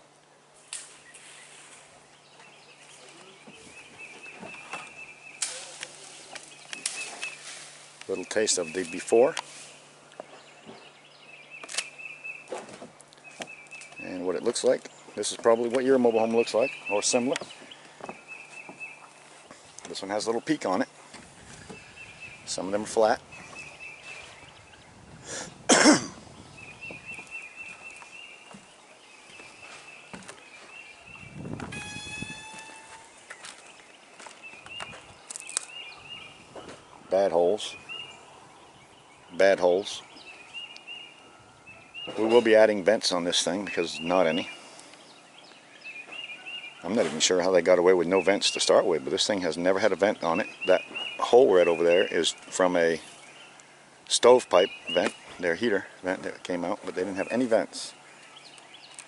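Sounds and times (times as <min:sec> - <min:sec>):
short breath: 0:25.2 - 0:25.6
person coughing: 0:25.7 - 0:26.2
faint high wavering tone: 0:31.7 - 0:33.2.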